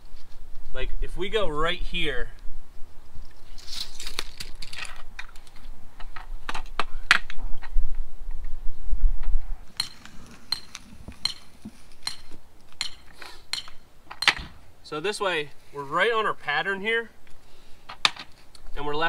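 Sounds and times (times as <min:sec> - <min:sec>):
tools tapping on stone: 0:09.8 - 0:14.4.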